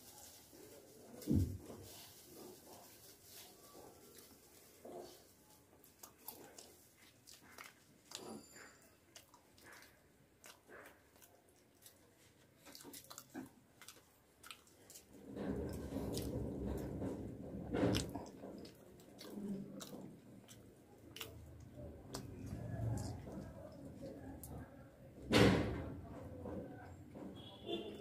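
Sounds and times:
chewing and mouth sounds: 0:04.1 - 0:24.8.

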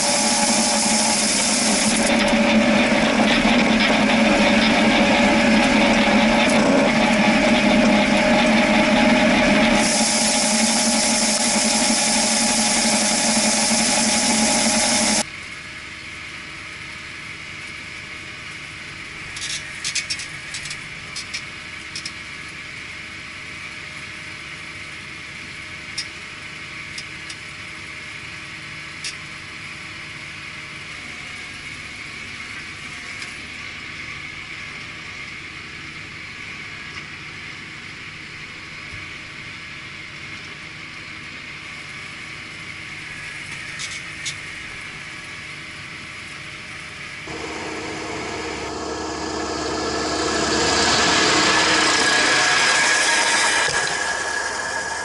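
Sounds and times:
steady high hum: 0:00.0 - 0:15.3, 0:46.4 - 0:55.0
tractor diesel engine running: 0:00.0 - 0:15.3, 0:46.5 - 0:55.0
sharp clicks and rattles: 0:00.1 - 0:11.7.

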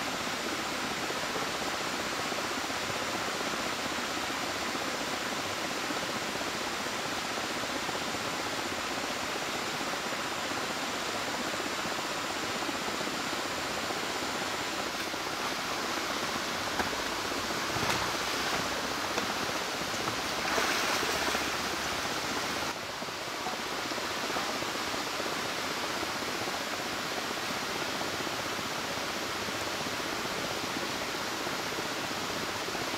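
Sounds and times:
river rapids rushing: 0:00.0 - 0:32.9.

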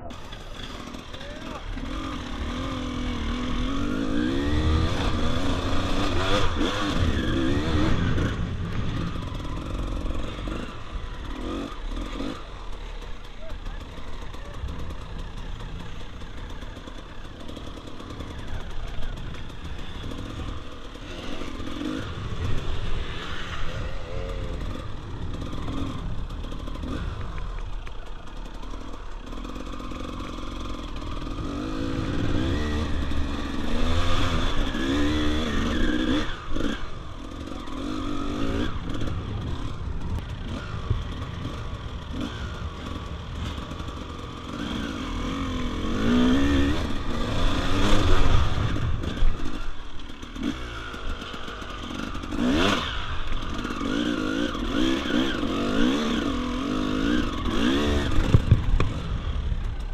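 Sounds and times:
dirt bike engine revving: 0:00.0 - 0:59.9
bike knocks and clatter: 0:58.2 - 0:59.0.

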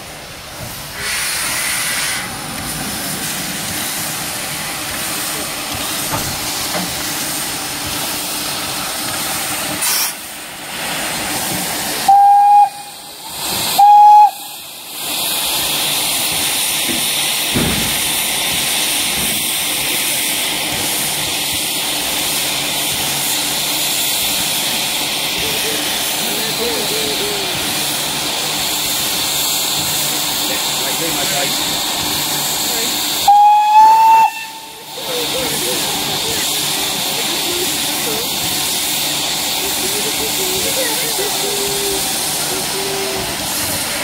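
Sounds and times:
steam hissing: 0:00.0 - 0:44.0
locomotive whistle toots: 0:12.0 - 0:13.1, 0:13.7 - 0:14.6, 0:33.2 - 0:34.8.

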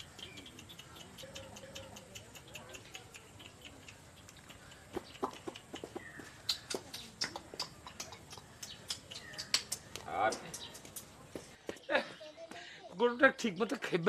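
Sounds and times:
high bird chirps: 0:00.0 - 0:11.1
chickens clucking: 0:00.0 - 0:11.8.

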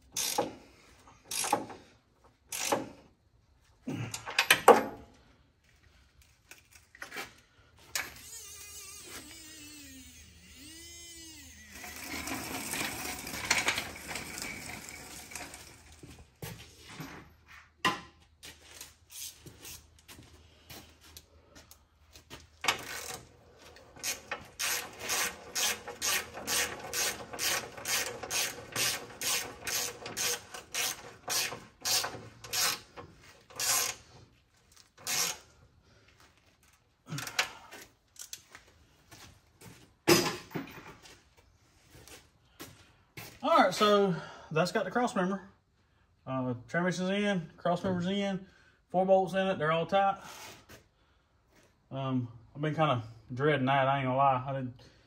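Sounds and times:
ratchet wrench clicking: 0:00.1 - 0:00.5, 0:01.3 - 0:01.7, 0:02.5 - 0:02.8, 0:24.0 - 0:32.9, 0:33.5 - 0:34.0, 0:35.0 - 0:35.4
metal parts scraping: 0:11.3 - 0:16.1, 0:22.6 - 0:35.5.

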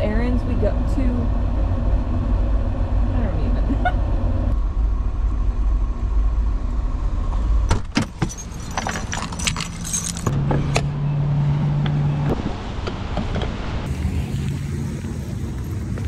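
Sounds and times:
low road rumble in truck cab: 0:00.0 - 0:16.0
keys jangling: 0:08.1 - 0:10.4
low hum of fuel pump: 0:13.8 - 0:16.0.

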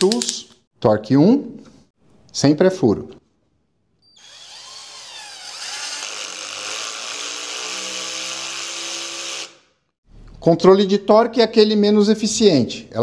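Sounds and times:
cordless drill driving a screw: 0:04.2 - 0:09.7.

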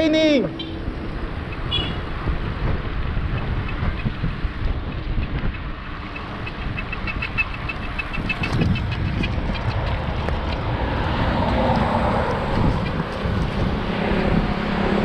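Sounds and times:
road traffic: 0:00.0 - 0:15.0
wind buffeting microphone: 0:00.6 - 0:15.0.

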